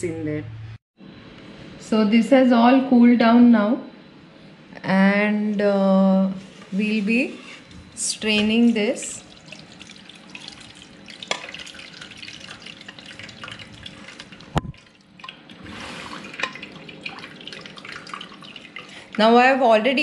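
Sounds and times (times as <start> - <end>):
broth trickling through strainer: 6.5 - 19.5.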